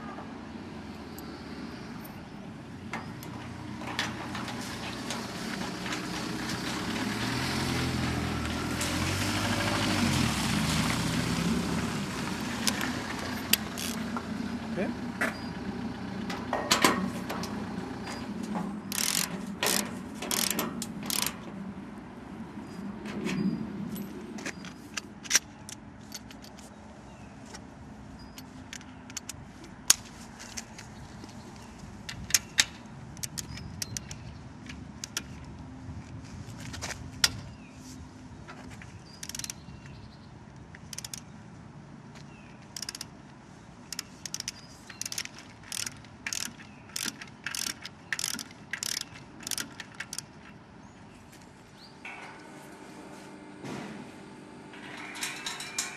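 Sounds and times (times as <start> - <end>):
ratchet clicking: 13.5 - 14.0, 18.9 - 21.4, 39.2 - 39.6, 40.8 - 41.3, 42.8 - 43.1, 43.9 - 50.3.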